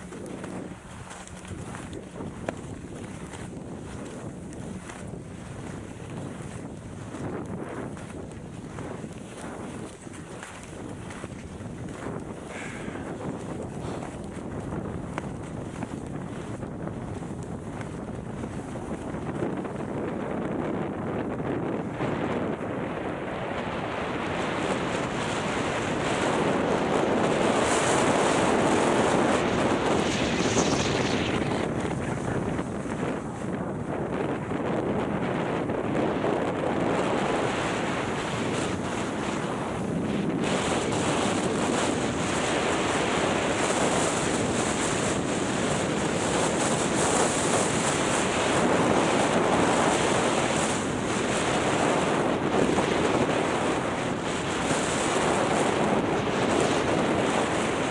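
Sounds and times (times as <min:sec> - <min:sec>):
skis sliding over snow: 0:00.0 - 0:20.2, 0:24.2 - 0:57.9
wind rushing over microphone: 0:00.0 - 0:57.9
skis hissing over snow: 0:12.1 - 0:14.0, 0:29.2 - 0:33.1.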